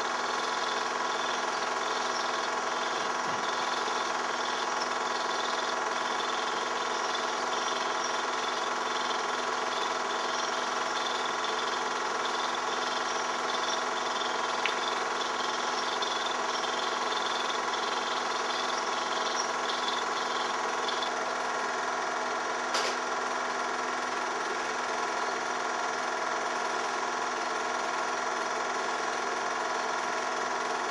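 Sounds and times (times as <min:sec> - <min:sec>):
film projector whirring: 0:00.0 - 0:30.9
projector click: 0:22.7 - 0:23.1.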